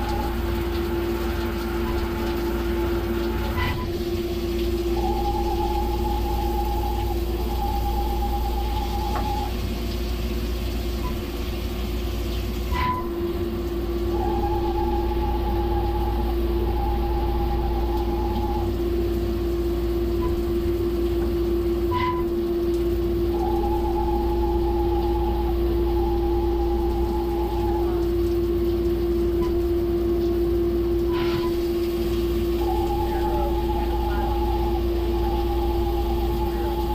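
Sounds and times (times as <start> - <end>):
high-pitched machine whine: 0.0 - 9.7, 12.7 - 36.9
milling machine humming: 0.0 - 36.9.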